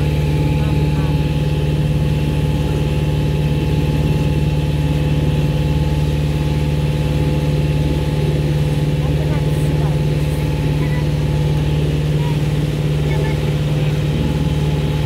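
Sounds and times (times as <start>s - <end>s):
boat engine low drone: 0.0s - 15.0s.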